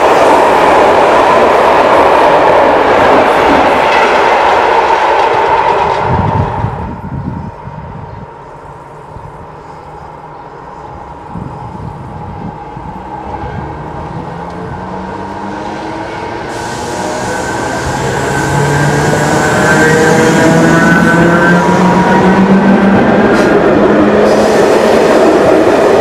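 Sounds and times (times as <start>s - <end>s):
freight train passing: 0.0s - 26.0s
wheels hissing on rails: 14.8s - 26.0s.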